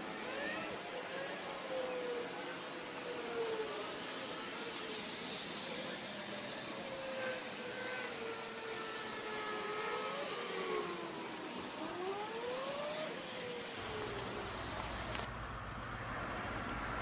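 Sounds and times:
steady high hiss: 0.0 - 12.0
motor vehicles passing: 13.8 - 17.0.

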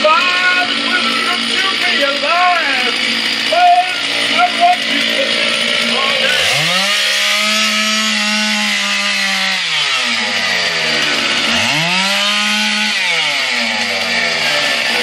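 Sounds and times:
chainsaw revving: 0.0 - 15.0.

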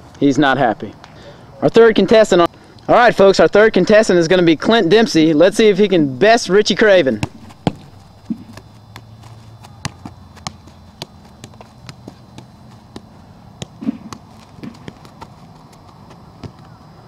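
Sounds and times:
football tapped with feet: 7.0 - 16.8.

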